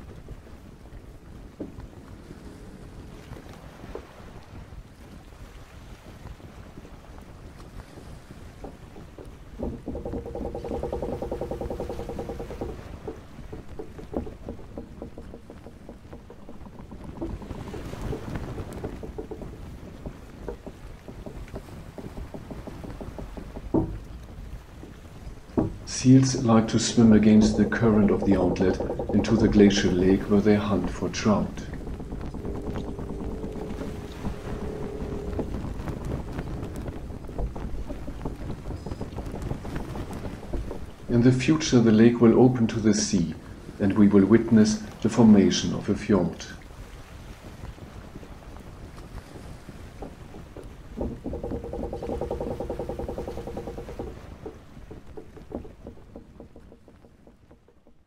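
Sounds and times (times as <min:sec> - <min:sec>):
boat low rumble: 0:00.0 - 0:58.0
water lapping among ice: 0:00.0 - 0:58.0
waves slapping against hull: 0:00.0 - 0:58.0
small irregular clicks: 0:06.2 - 0:46.0, 0:47.4 - 0:58.0
low hum: 0:08.6 - 0:37.6, 0:49.9 - 0:58.0.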